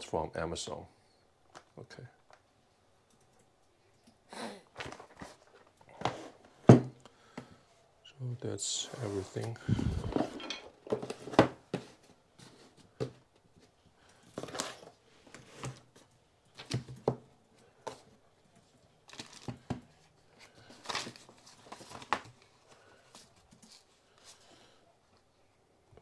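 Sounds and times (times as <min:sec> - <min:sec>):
cardboard boxes knocking on table: 0:06.6 - 0:07.0
paper booklets rustling: 0:19.0 - 0:24.5.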